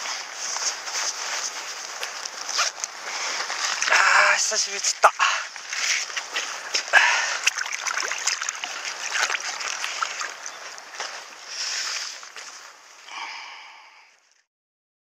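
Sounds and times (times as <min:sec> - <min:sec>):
river water splashing: 0:00.0 - 0:14.4
board handled in water: 0:02.2 - 0:12.6.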